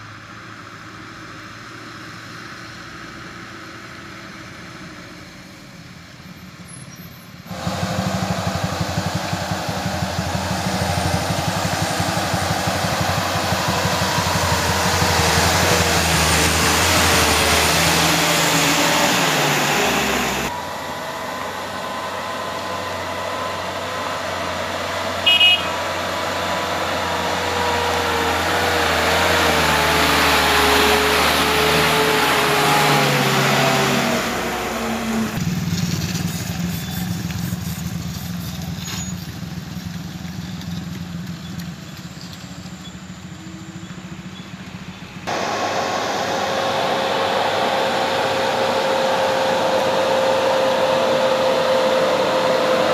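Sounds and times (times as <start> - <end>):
diesel trucks passing: 0.0 - 52.9
truck horn toot: 18.3 - 29.3.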